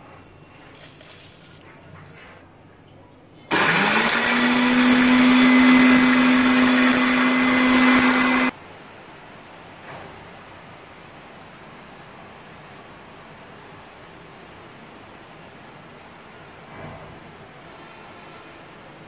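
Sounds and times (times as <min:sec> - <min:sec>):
blender grinding spices: 0:00.7 - 0:01.8, 0:03.5 - 0:08.5.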